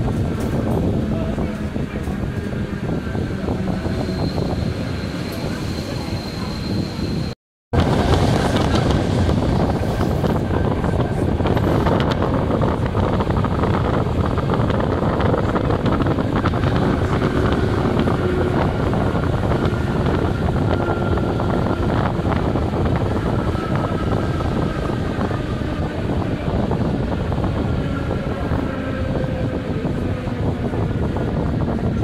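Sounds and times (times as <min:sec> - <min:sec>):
wheels rumbling on rail: 0:00.0 - 0:32.0.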